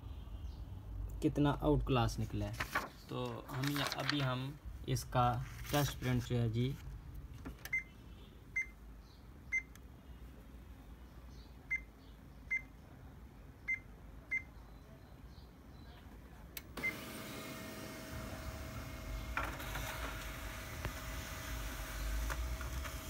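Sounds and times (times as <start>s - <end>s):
printer key beeps: 7.6s - 7.9s, 8.6s - 8.8s
printer running hum: 16.8s - 23.0s.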